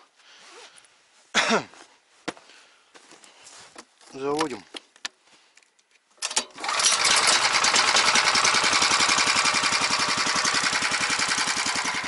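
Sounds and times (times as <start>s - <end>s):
recoil cord pull: 6.2s - 12.0s
small petrol engine running: 6.2s - 12.0s.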